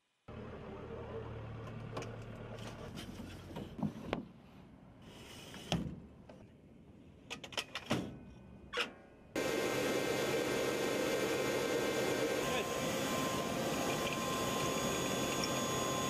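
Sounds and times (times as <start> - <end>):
loud steady engine noise: 9.4 - 16.0.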